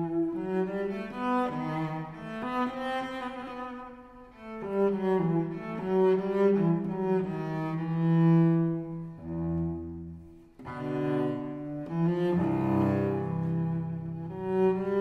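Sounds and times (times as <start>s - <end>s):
slow bowed-string melody: 0.0s - 15.0s.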